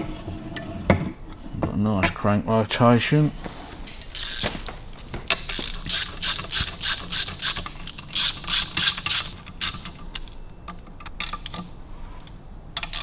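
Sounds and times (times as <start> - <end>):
socket ratchet clicking: 4.2 - 4.6, 5.3 - 10.3, 12.8 - 13.0.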